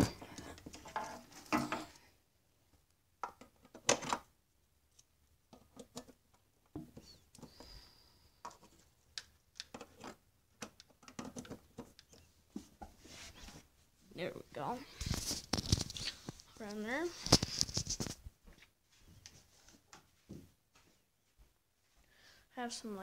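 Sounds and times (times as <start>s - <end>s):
plug and cord clicks and rustles: 15.0s - 18.2s.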